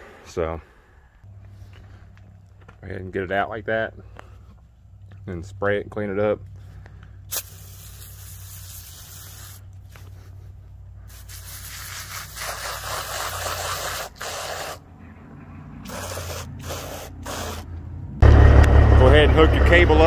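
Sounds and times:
aerosol can spraying: 0:07.3 - 0:10.0, 0:11.1 - 0:14.8, 0:15.8 - 0:17.7.

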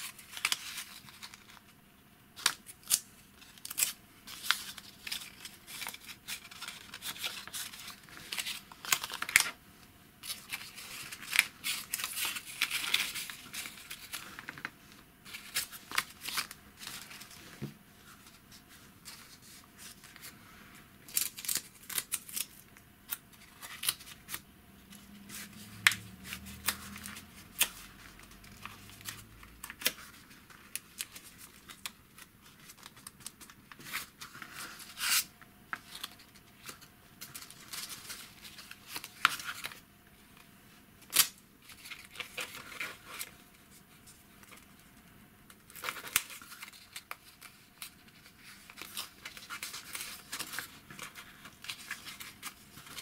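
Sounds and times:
paper rustling and crinkling: 0:00.0 - 0:01.8, 0:02.4 - 0:09.6, 0:10.2 - 0:53.0.

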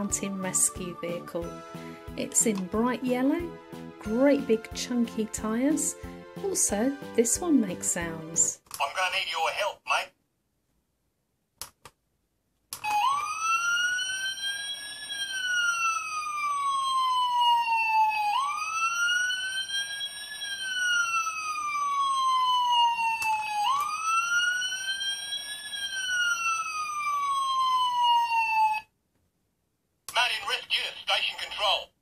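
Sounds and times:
toy electronic siren: 0:12.8 - 0:28.9.

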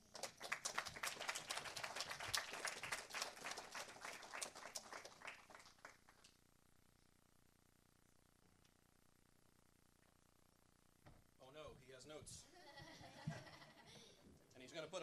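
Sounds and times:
small crowd applauding: 0:00.0 - 0:06.4.

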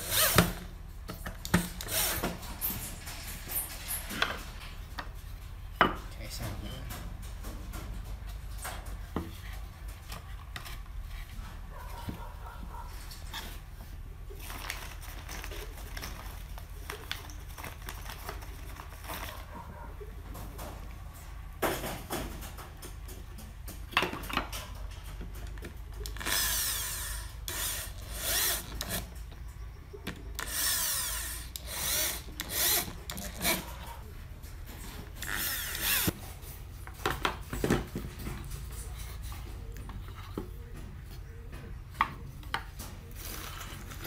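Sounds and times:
power drill driving screws: 0:00.0 - 0:00.6, 0:01.8 - 0:02.4, 0:26.2 - 0:29.1, 0:30.4 - 0:33.6, 0:35.2 - 0:36.1.

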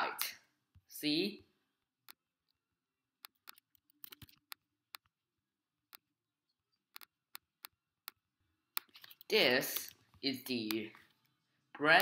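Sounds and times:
mouse and keyboard clicks: 0:03.2 - 0:05.1, 0:06.8 - 0:10.0.

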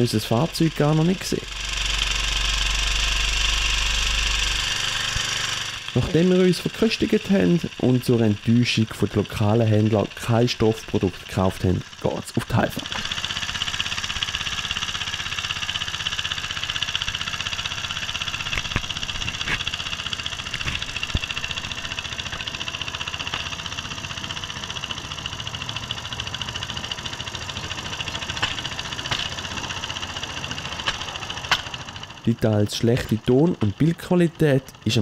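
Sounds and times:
small engine running: 0:00.0 - 0:35.0
sharp clicks: 0:16.9 - 0:35.0.

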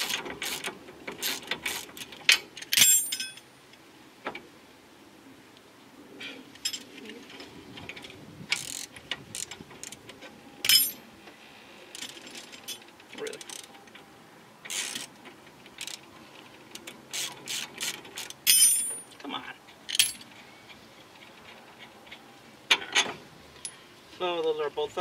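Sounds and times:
metallic tool clinks: 0:02.8 - 0:03.4, 0:10.6 - 0:11.0, 0:18.5 - 0:19.2.

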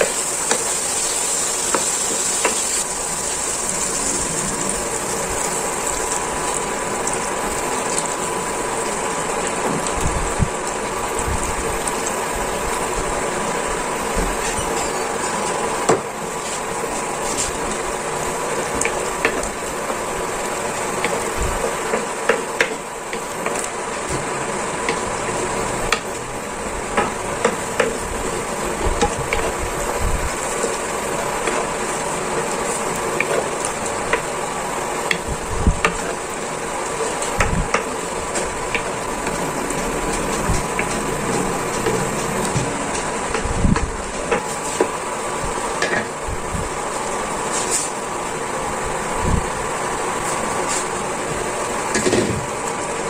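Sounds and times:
sauce simmering hiss: 0:00.0 - 0:53.0.

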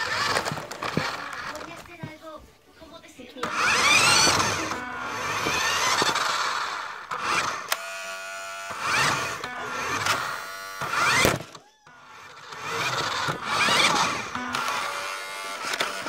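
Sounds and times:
toy car electric motor whirring: 0:00.0 - 0:01.9, 0:03.4 - 0:16.0
sharp clicks: 0:05.3 - 0:07.9, 0:15.6 - 0:16.0.

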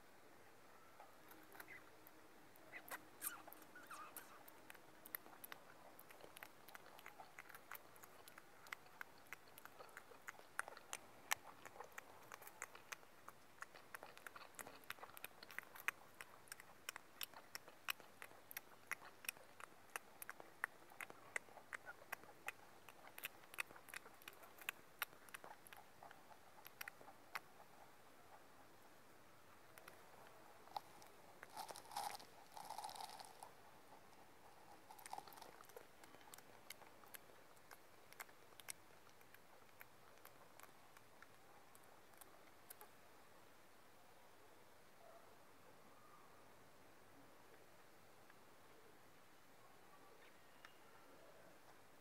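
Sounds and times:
rabbit crunching snack: 0:01.0 - 0:28.8, 0:29.6 - 0:43.0.

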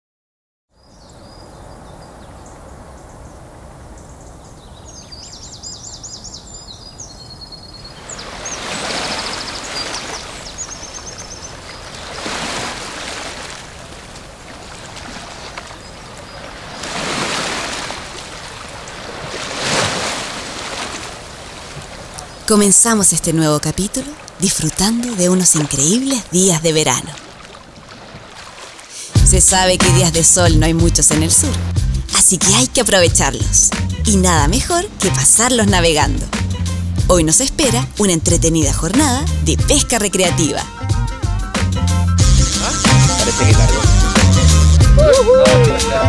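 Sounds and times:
surf washing over rocks: 0:08.0 - 0:22.5.

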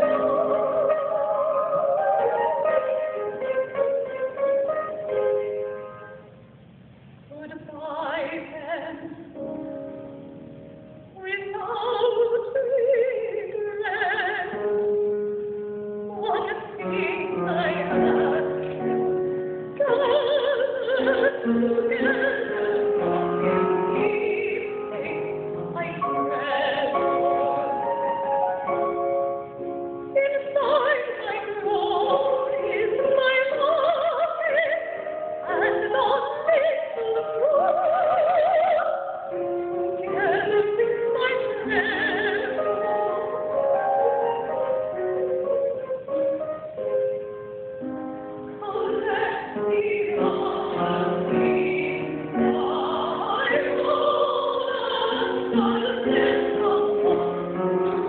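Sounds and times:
soprano singing operatically: 0:00.0 - 0:04.2, 0:07.3 - 0:09.3, 0:11.2 - 0:14.9, 0:16.1 - 0:19.0, 0:19.7 - 0:27.8, 0:30.1 - 0:43.4, 0:48.6 - 0:58.0
grand piano: 0:00.0 - 0:58.0.

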